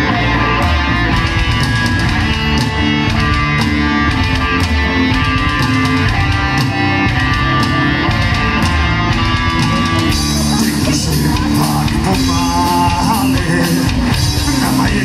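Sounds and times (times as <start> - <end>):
metal band playing live: 0.0 - 15.0
person singing: 9.7 - 15.0.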